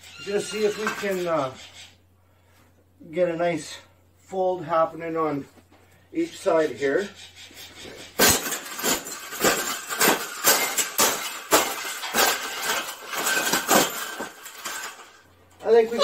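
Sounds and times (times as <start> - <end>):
wire birdcage clanking and rattling: 0.0 - 1.5, 7.7 - 16.0.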